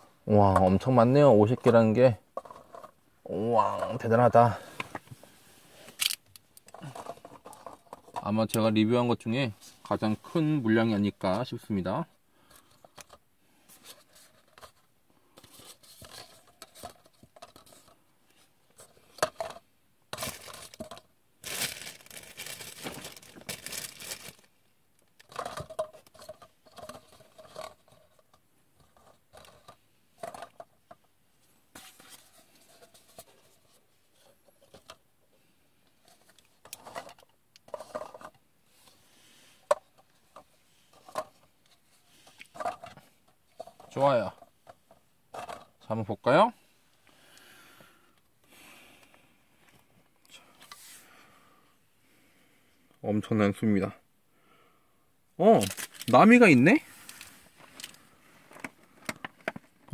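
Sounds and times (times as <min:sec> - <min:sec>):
paper cups being handled: 0:00.0 - 0:06.0, 0:06.6 - 0:08.6, 0:12.4 - 0:24.6, 0:25.2 - 0:31.1, 0:31.7 - 0:35.1, 0:35.9 - 0:45.9, 0:55.4 - 0:59.9
paper rustling and crinkling: 0:20.2 - 0:24.5, 0:55.5 - 0:58.0.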